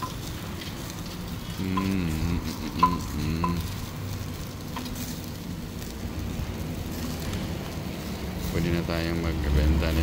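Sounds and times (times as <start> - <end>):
meat sizzling on a grill: 0.0 - 10.0.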